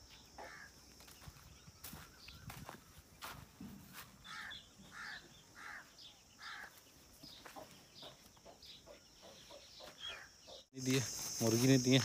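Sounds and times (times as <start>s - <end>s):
bird short harsh calls: 4.2s - 6.8s.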